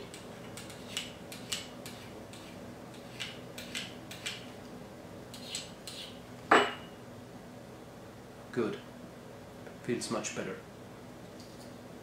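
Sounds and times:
sharpening rod scraping blade: 0:05.3 - 0:06.2
ceramic rod clinking on table: 0:06.5 - 0:06.9.

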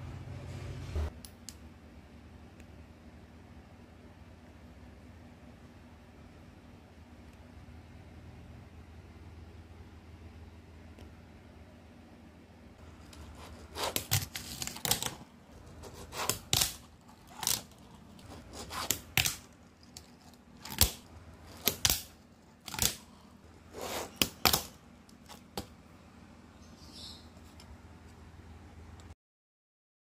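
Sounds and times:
fingerboard wheels scraping: 0:12.8 - 0:20.8, 0:22.7 - 0:24.8.

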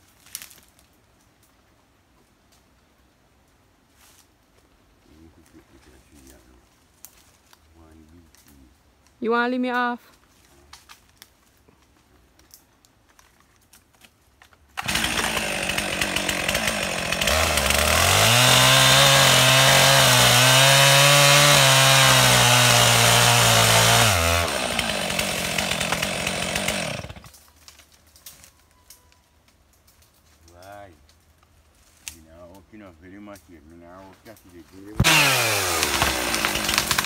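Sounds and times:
chainsaw cutting tree trunk: 0:14.8 - 0:27.3, 0:35.0 - 0:37.0.

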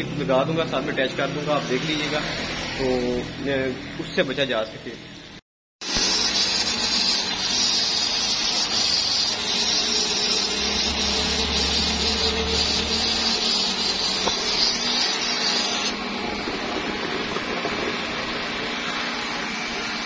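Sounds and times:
hose nozzle spraying water: 0:05.8 - 0:16.0.

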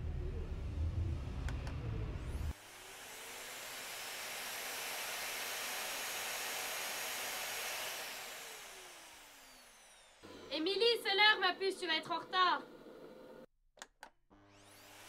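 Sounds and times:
deep low sound: 0:00.0 - 0:02.5.

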